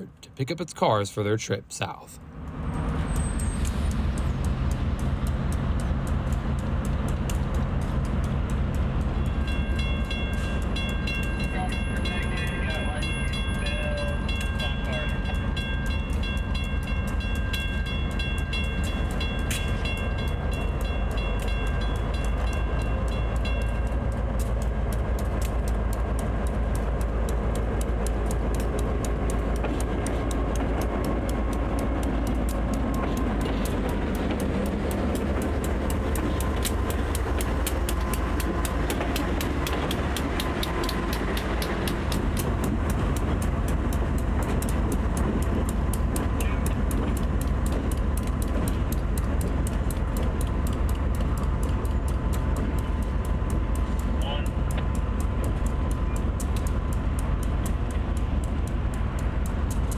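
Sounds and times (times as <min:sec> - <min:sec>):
diesel locomotive engines rumbling: 0:00.0 - 0:59.9
fast even clicking: 0:03.6 - 0:11.4, 0:15.8 - 0:59.9.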